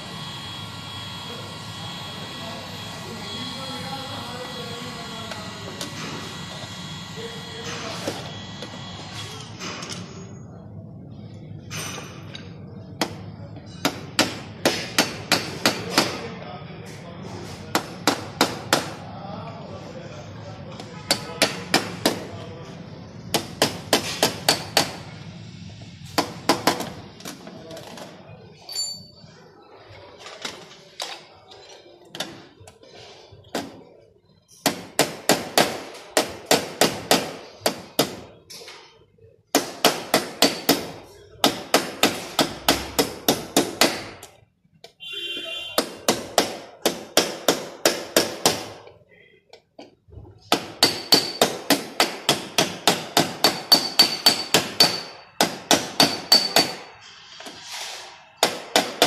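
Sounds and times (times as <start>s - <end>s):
small hammer tapping sheet metal: 50.5s - 56.9s.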